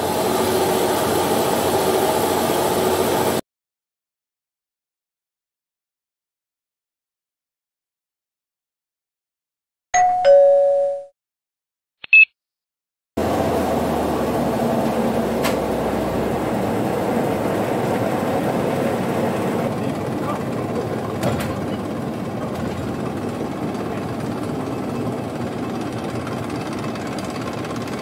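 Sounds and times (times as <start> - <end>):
engine running steadily: 0.0 - 3.4, 13.2 - 28.0
two-note chime: 10.0 - 11.1.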